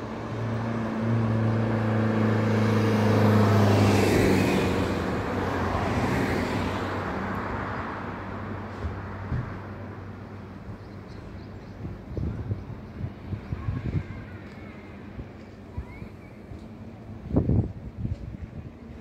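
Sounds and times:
vehicle driving past: 0.0s - 9.3s.

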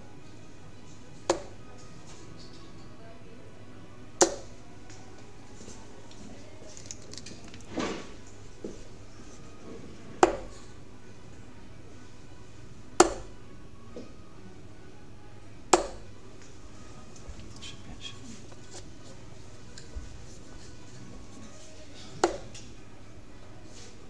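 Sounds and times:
darts striking a dartboard: 1.2s - 1.6s, 4.2s - 4.5s, 10.0s - 10.7s, 13.0s - 13.4s, 15.7s - 16.1s, 22.1s - 22.7s
soft rustle: 23.6s - 24.0s.

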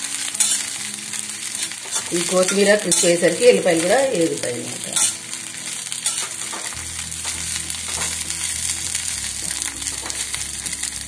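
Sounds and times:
leaves sizzling in oil: 0.0s - 11.0s
spatula scraping a pan: 0.3s - 0.8s, 1.5s - 4.0s, 4.8s - 9.0s.

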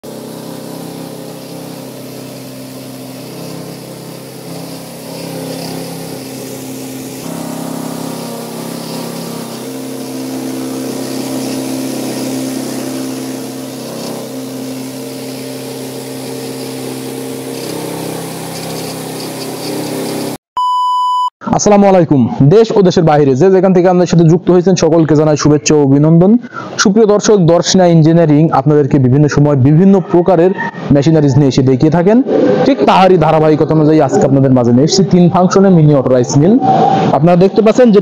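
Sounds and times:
rice mill running: 0.0s - 20.4s.

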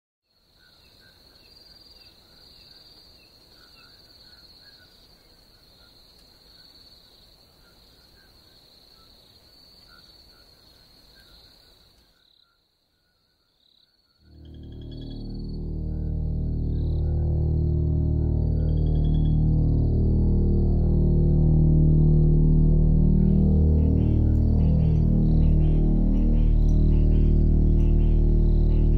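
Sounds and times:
crickets trilling: 0.4s - 28.9s
low background rumble: 14.4s - 28.9s.

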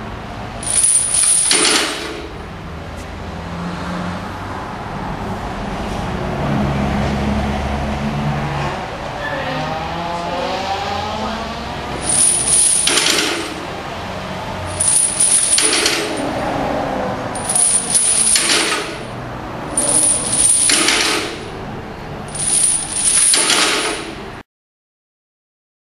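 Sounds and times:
heavy chains rattling: 0.6s - 2.4s, 11.9s - 13.9s, 14.6s - 16.4s, 17.3s - 24.4s.

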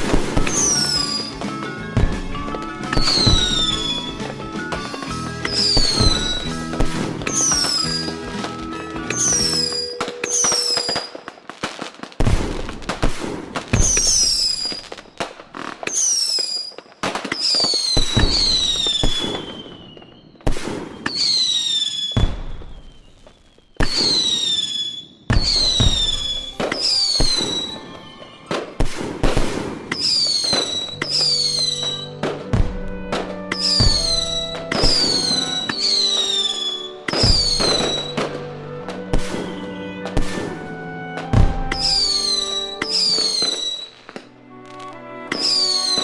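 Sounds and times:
fireworks whistle falling in pitch: 0.0s - 11.3s, 13.8s - 15.1s, 15.9s - 46.0s
music: 0.0s - 16.4s, 17.4s - 19.7s, 23.8s - 24.5s, 25.3s - 46.0s
fireworks bangs: 0.0s - 46.0s.

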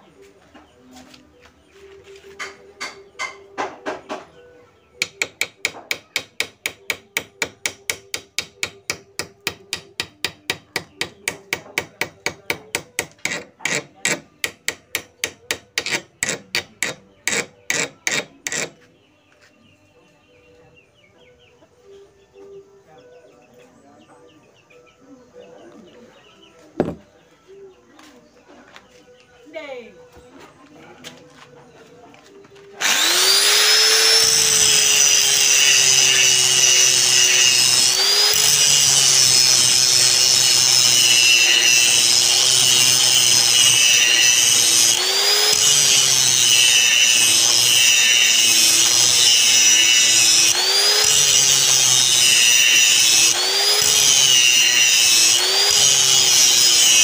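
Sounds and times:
chipping hammer striking metal: 5.0s - 18.7s.

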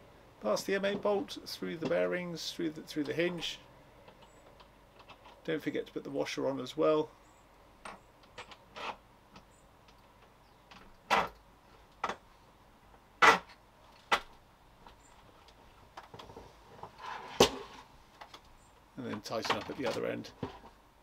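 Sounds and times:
clicks and knocks of handling: 4.0s - 5.5s, 7.8s - 12.2s, 13.2s - 20.8s.

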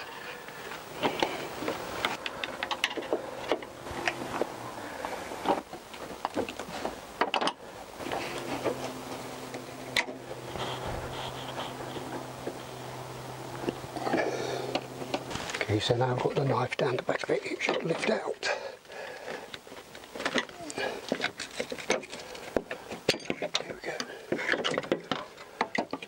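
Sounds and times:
low steady hum: 0.0s - 26.0s
tools prying and scraping plastic: 19.5s - 26.0s.

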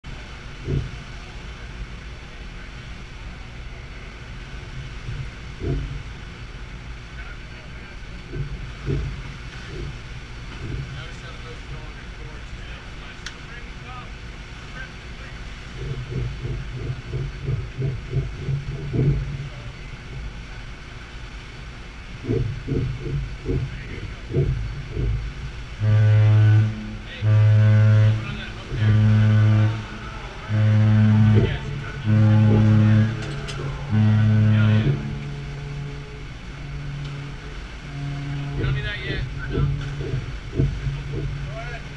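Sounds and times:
churning sea: 0.0s - 41.9s
low thump: 0.6s - 1.0s, 4.6s - 6.1s, 8.3s - 11.0s, 15.8s - 19.5s, 22.2s - 25.4s, 38.0s - 41.6s
wind buffeting microphone: 7.8s - 11.9s, 15.6s - 41.9s
deep ship's whistle blasts: 25.7s - 41.9s.

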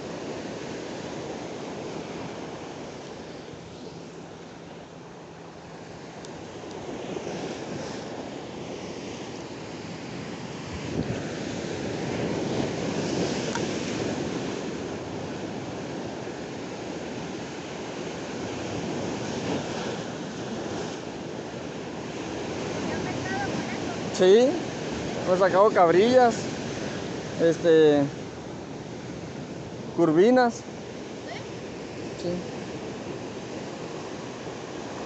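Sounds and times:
wind buffeting microphone: 10.0s - 27.4s
surf breaking over rocks: 17.5s - 28.2s.

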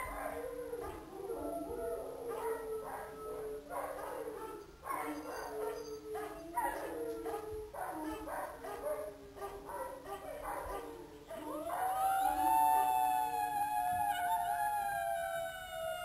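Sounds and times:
jackals howling and yipping: 0.0s - 3.6s, 11.4s - 16.0s.

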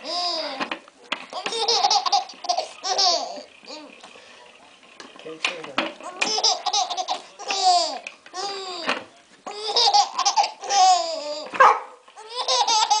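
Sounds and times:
baby laughing: 0.0s - 0.6s, 1.3s - 3.9s, 6.0s - 8.9s, 9.5s - 11.6s, 12.2s - 13.0s.

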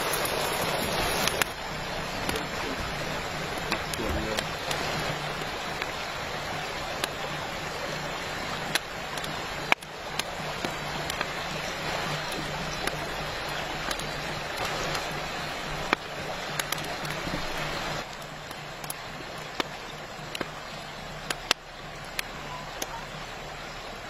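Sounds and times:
wood fire crackling and popping: 0.0s - 23.1s
river flowing: 0.0s - 24.0s.

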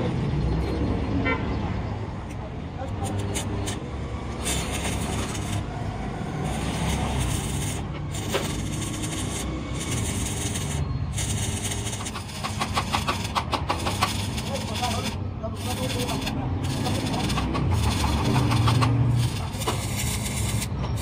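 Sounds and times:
welding arc crackling: 2.9s - 5.7s, 6.3s - 21.0s
sharp welding pops: 6.7s - 21.0s.

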